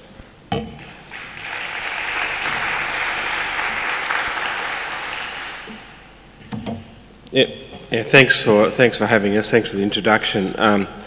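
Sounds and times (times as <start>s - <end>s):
audience applause: 0.8s - 6.4s.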